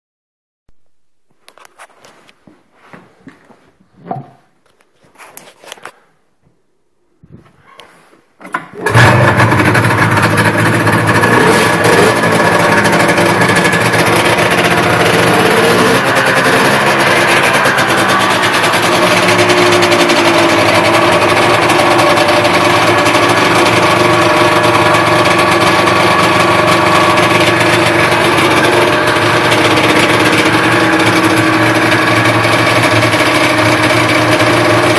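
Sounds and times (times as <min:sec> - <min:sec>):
snowmobile engine running: 0:08.8 - 0:34.9.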